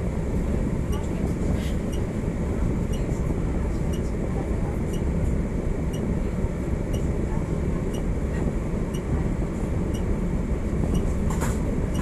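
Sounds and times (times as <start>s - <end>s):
low rumble in tram cab: 0.0s - 12.0s.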